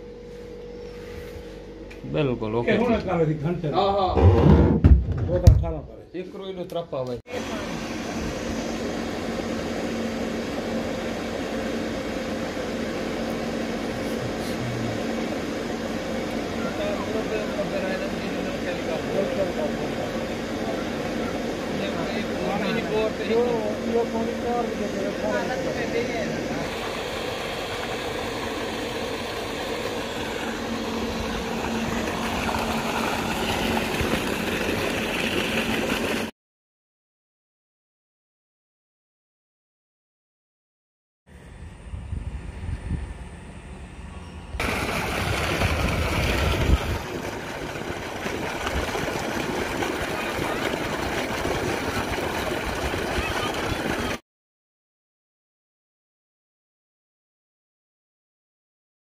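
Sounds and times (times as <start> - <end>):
electrical machine hum: 0.0 - 6.6, 7.3 - 36.3, 41.3 - 54.2
water gushing and splashing: 26.6 - 36.3, 44.6 - 54.2.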